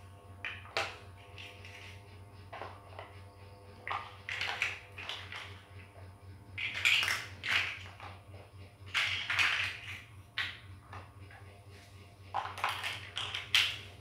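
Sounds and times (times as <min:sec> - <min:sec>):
plastic toy bricks clattering: 0:03.8 - 0:05.7, 0:06.6 - 0:08.2, 0:08.9 - 0:11.0, 0:12.3 - 0:13.9.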